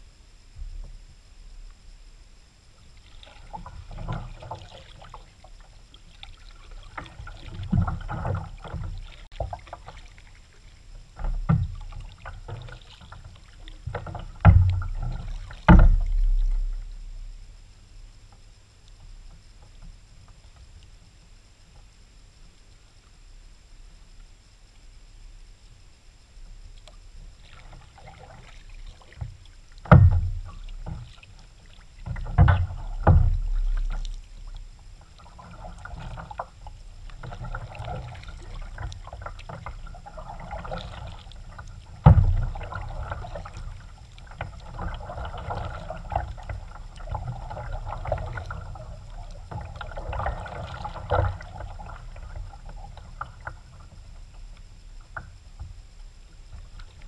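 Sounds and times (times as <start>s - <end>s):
paddle splashing in water: 2.8s - 17.2s, 26.8s - 57.0s.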